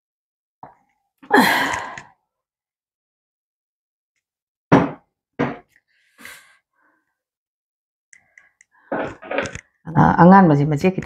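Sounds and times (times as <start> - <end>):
person sighing: 1.2 - 2.2
glass set down on table: 4.7 - 5.6.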